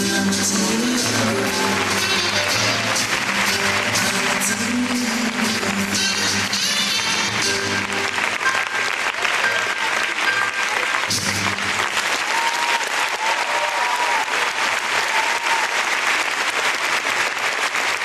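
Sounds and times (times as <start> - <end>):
programme music: 0.0 - 12.0
audience applauding: 0.0 - 18.0.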